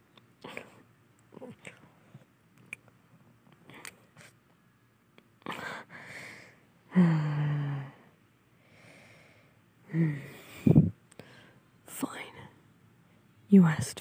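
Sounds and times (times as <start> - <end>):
voiced sigh: 5.5 - 8.1, 8.7 - 11.6
person breathing close to microphone: 5.6 - 11.7.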